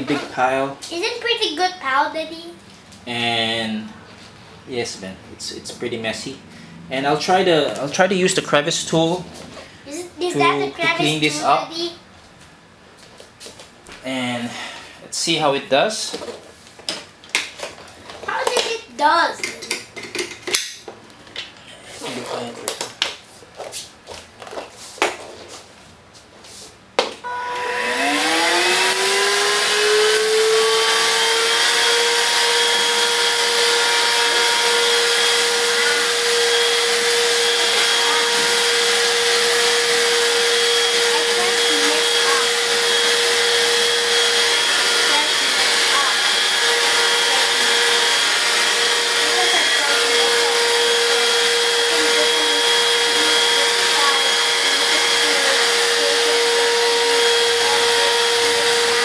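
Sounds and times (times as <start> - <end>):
vacuum motor whining: 27.2 - 59.0.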